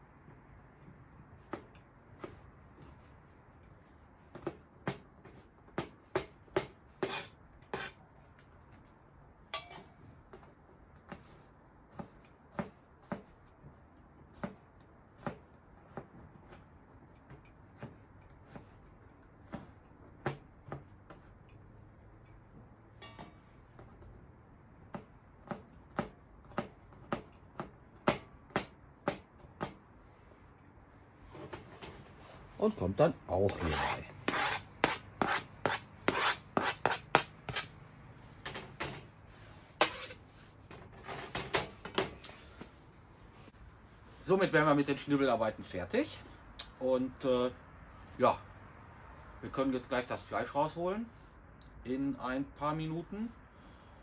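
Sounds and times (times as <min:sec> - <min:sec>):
knife chopping on plastic board: 0:04.4 - 0:07.9, 0:11.9 - 0:13.3, 0:19.5 - 0:21.3, 0:24.9 - 0:29.8
knife scraping cutting board: 0:07.0 - 0:08.0, 0:33.5 - 0:37.7, 0:39.7 - 0:40.4.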